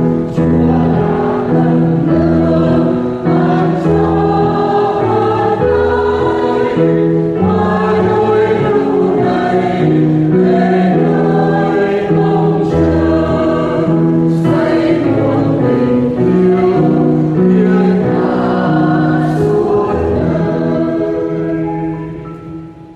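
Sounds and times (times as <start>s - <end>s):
choir singing a hymn: 0.0s - 22.9s.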